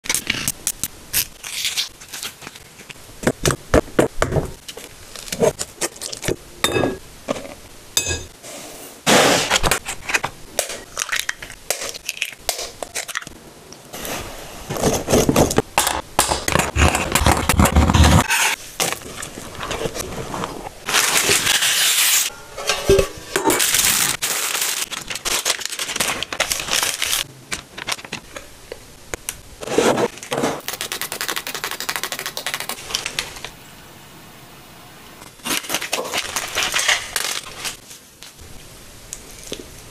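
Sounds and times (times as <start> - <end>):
clicks and knocks of ingredients handled: 24.8 - 29.4.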